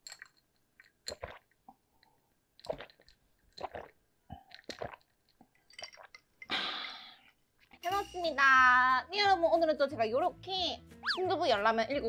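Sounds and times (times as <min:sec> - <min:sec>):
person gulping drink: 0:00.1 - 0:07.8.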